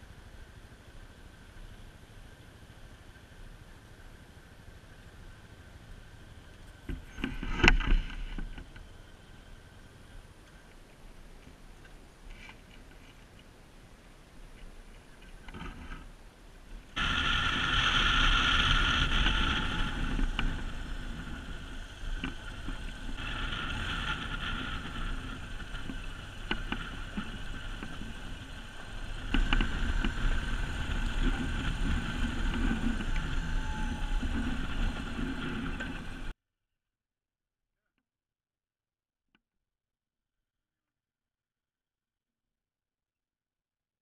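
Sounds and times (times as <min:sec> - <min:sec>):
wind rushing over microphone: 0:16.8 - 0:36.3
motorcycle engine running: 0:17.0 - 0:36.3.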